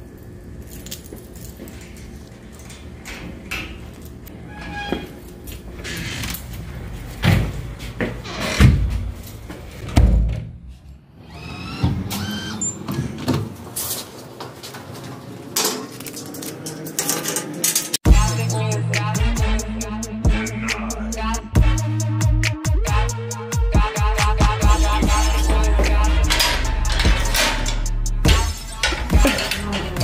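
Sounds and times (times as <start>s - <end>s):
keys and lock clicking: 25.2s - 30.0s.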